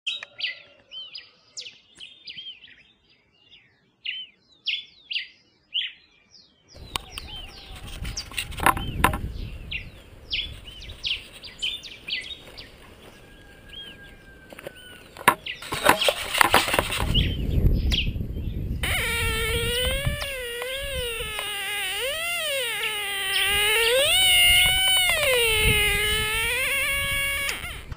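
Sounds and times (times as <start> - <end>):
small birds chirping: 0.1 - 27.9
wind rumble: 6.8 - 21.5, 23.3 - 27.9
microphone handling noise: 6.8 - 27.9
metal detector tone wavering: 18.8 - 27.9.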